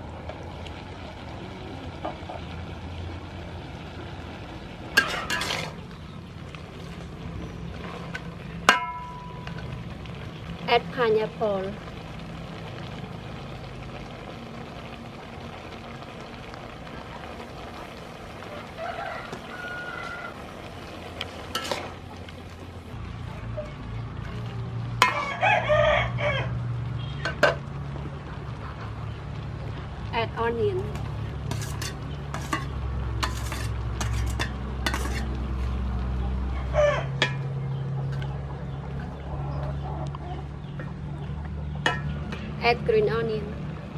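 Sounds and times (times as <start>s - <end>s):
food sizzling in a wok: 0.0s - 37.6s
low fire rumble: 0.0s - 43.9s
spatula scraping a wok: 4.9s - 5.9s, 21.4s - 22.1s, 31.4s - 35.9s.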